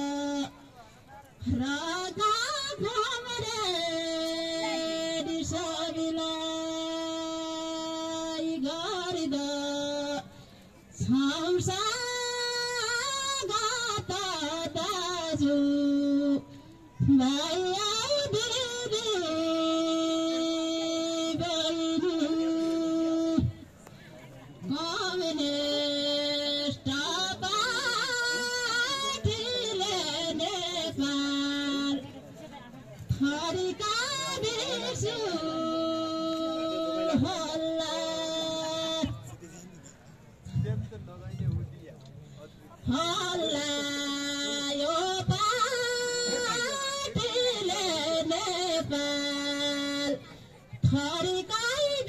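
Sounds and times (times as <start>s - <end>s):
person singing folk melody: 0.0s - 39.3s, 42.7s - 52.0s
person singing long held notes: 33.1s - 39.2s, 42.9s - 52.0s.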